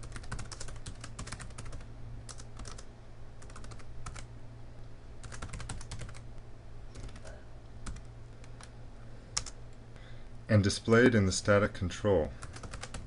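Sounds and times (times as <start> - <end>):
computer keyboard typing: 0.0 - 4.3, 5.2 - 6.2, 7.0 - 8.7, 9.4 - 9.6, 12.4 - 13.0
low steady hum: 0.0 - 13.0.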